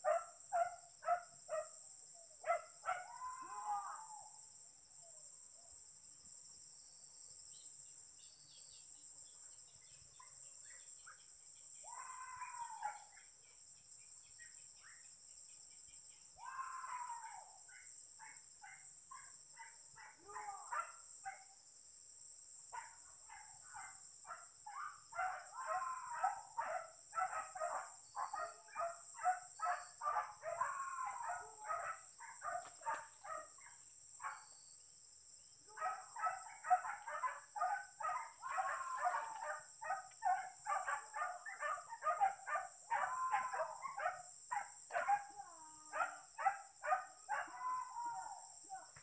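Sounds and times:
dogs barking rapidly: 22.8 - 34.4, 35.8 - 45.3, 45.9 - 47.9.

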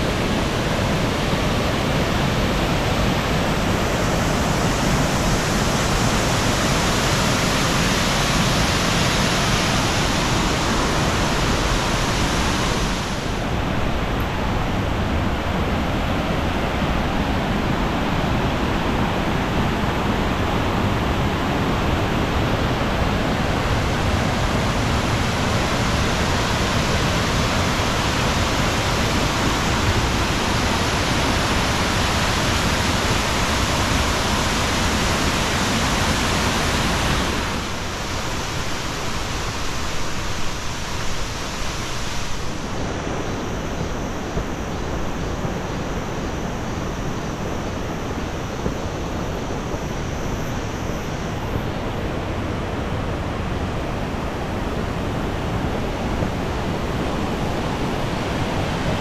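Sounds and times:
stream rushing over boulders: 0.0 - 59.0.

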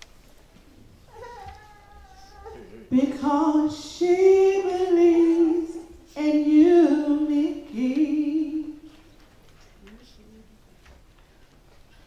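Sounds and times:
person singing long notes: 2.9 - 8.7.

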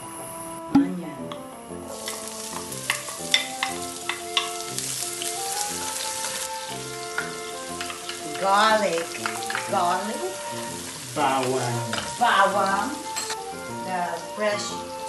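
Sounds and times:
onion sizzling in hot oil: 1.7 - 15.0
wooden spatula stirring: 2.0 - 13.4.

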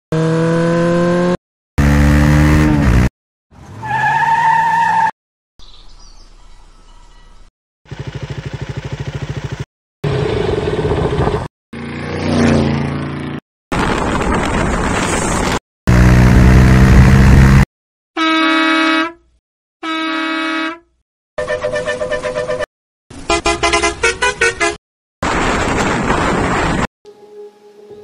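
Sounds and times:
short high horn toots: 18.2 - 22.7, 23.3 - 24.8
loud low horn blast: 19.8 - 24.8.

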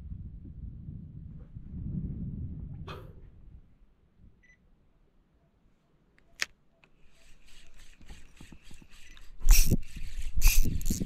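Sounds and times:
sharp click: 6.2 - 7.0
spinning reel clicking and rattling: 7.1 - 11.0.

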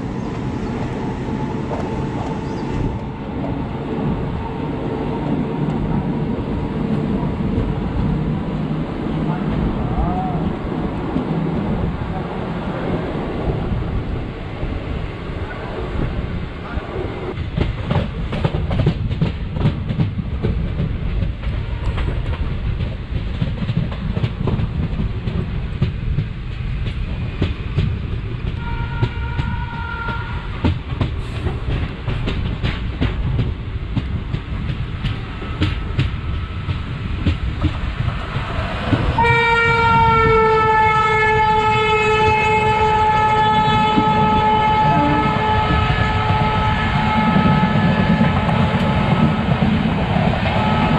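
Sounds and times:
passing locomotive: 0.0 - 50.9
train rumble: 0.0 - 50.9
train horn: 28.6 - 30.5, 39.2 - 48.8, 50.6 - 50.9.

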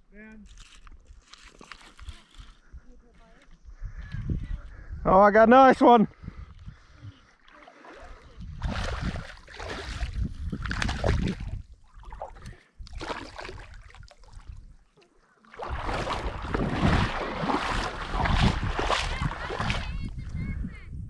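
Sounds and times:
wind buffeting microphone: 3.6 - 7.3, 8.0 - 14.8, 15.6 - 21.0
fish thrashing and splashing: 7.5 - 14.7, 15.5 - 20.0.

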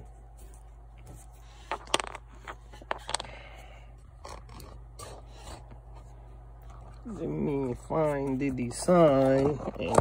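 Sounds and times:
steady low hum: 0.0 - 10.0
small parts clicking and scraping: 1.1 - 6.1.

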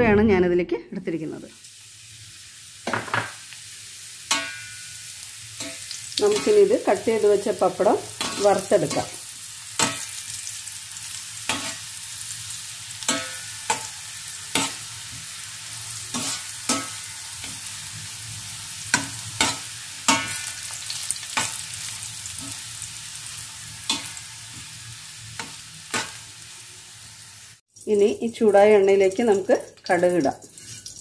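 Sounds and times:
pieces sizzling in oil: 1.4 - 31.0
metal spatula scraping pan: 8.0 - 10.3, 11.4 - 12.0, 13.0 - 17.8, 18.9 - 22.7, 30.4 - 31.0.

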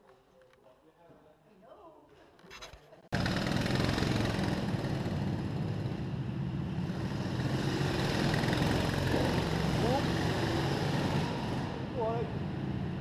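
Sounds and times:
go-kart engines running: 3.2 - 13.0.

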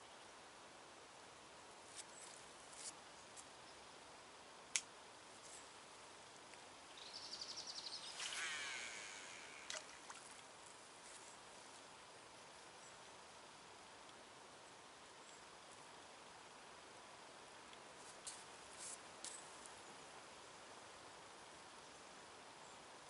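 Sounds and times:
faint outdoor hiss: 0.0 - 23.0
fishing reel whirring: 8.0 - 10.0.

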